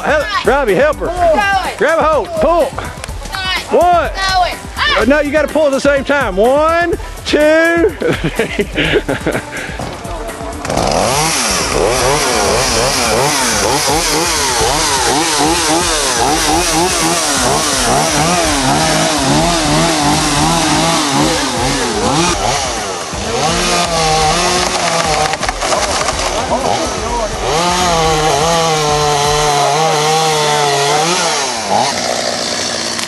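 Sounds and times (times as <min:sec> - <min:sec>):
chainsaw revving: 0:08.8 - 0:33.0.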